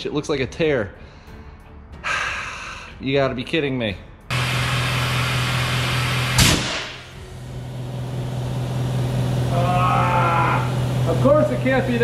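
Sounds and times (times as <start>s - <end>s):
motor hum: 4.3s - 12.0s
sharp crack: 6.3s - 7.1s.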